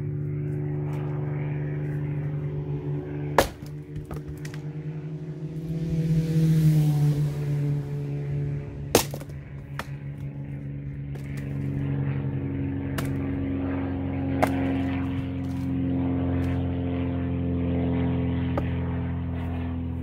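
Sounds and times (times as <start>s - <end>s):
steady motor drone: 0.0s - 20.0s
axe splitting log: 3.3s - 4.6s, 8.9s - 10.3s, 12.9s - 13.3s, 14.4s - 15.7s.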